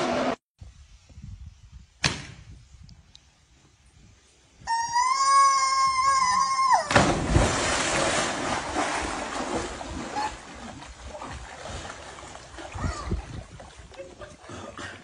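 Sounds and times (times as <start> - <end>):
pool water splashing and churning: 6.5 - 15.0
short low splashes: 6.9 - 14.0.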